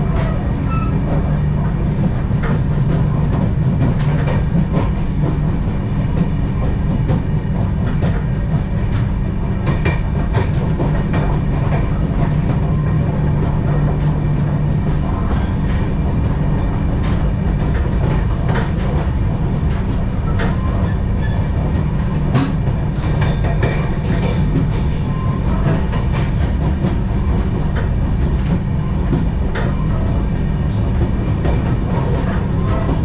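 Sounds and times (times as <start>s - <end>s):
train rumble: 0.0s - 33.0s
wheels clicking over rail joints: 0.0s - 33.0s.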